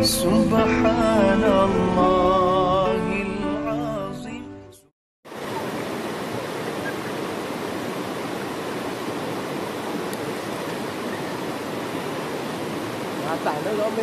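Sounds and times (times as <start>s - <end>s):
waterfall rushing: 5.3s - 14.0s.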